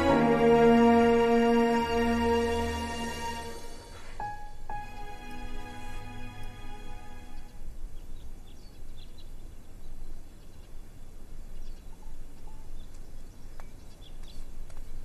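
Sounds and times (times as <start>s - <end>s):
outdoor background noise: 0.0s - 15.0s.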